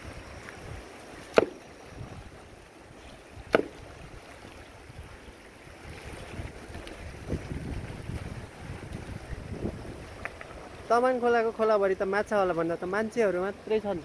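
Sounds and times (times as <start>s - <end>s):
river rushing: 0.0s - 14.0s
sledgehammer blows on boulder: 1.3s - 1.6s, 3.5s - 3.8s.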